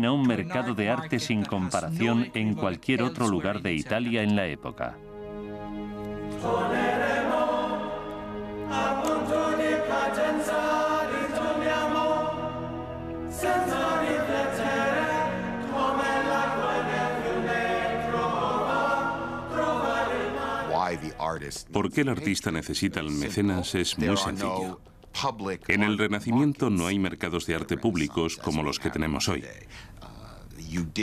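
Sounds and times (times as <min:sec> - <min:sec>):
choir singing sustained notes: 0:00.6 - 0:21.4.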